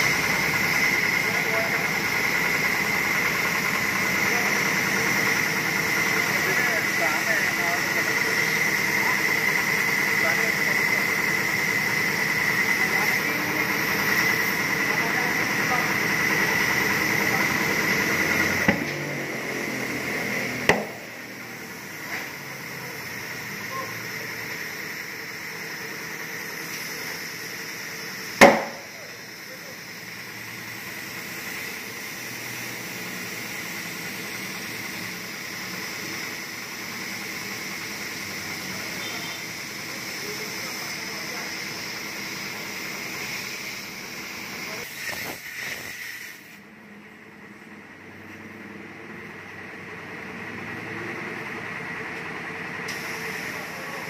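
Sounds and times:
compressed air hissing: 0.0 - 46.7, 52.8 - 54.0
tyre bead bang: 20.7 - 21.0, 28.4 - 28.8.

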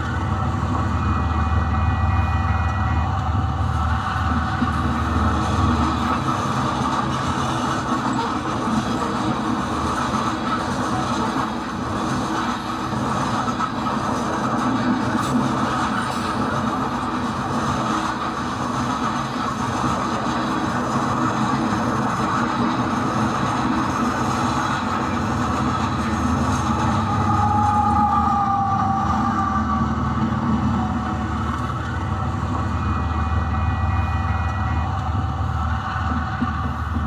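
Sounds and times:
model train rumbling on track: 0.0 - 37.0
falling whine: 24.8 - 36.5.

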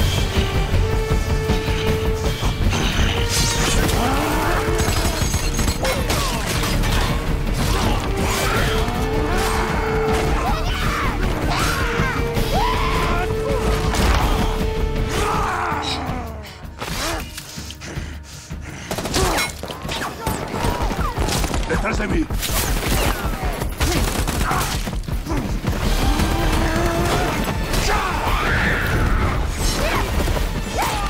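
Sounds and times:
tense orchestral score: 0.0 - 31.0.

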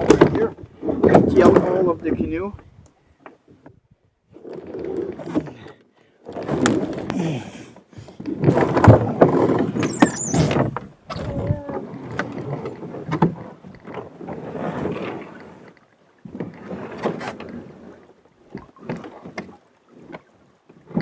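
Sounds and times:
canoe hull scraping on rocks: 0.0 - 2.6, 4.3 - 20.2
short squeal: 9.8 - 11.2.

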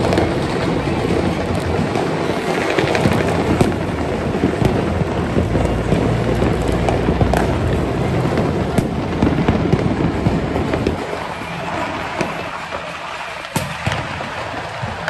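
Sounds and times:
fireworks crackling and popping: 0.0 - 15.0.

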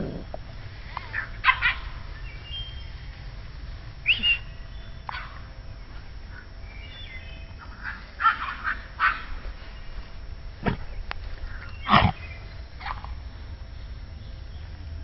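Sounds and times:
puppies yipping: 1.1 - 2.2, 4.1 - 5.5, 7.6 - 9.6, 11.5 - 13.2.

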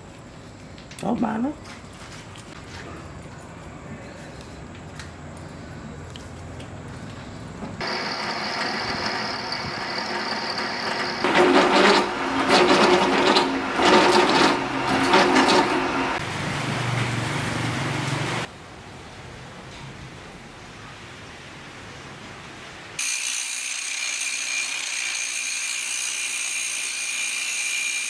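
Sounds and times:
drill bit cutting metal: 7.8 - 16.2, 23.0 - 28.0
drill press motor whine: 7.8 - 16.2.

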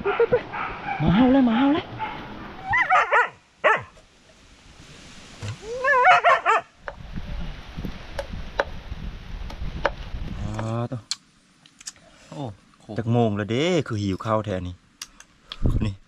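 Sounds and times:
dog yelping and whining: 0.0 - 3.9, 5.6 - 6.6.

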